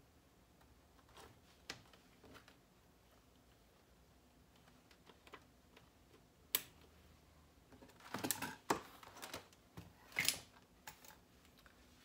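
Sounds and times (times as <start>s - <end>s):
clicks and rattles of connectors: 7.8s - 11.8s.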